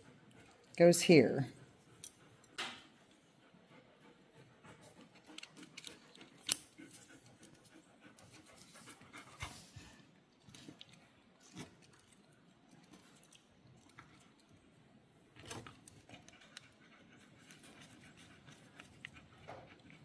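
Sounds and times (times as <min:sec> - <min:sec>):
dog panting: 0:00.0 - 0:00.8, 0:01.5 - 0:10.3, 0:15.8 - 0:20.0.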